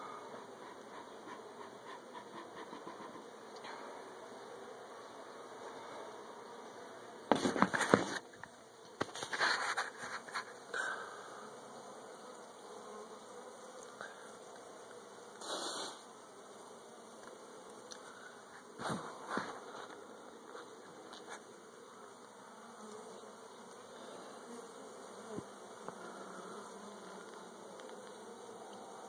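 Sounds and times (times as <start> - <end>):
bees buzzing: 0.0 - 29.0
hive frames scraping and knocking: 7.2 - 10.7, 18.5 - 21.6.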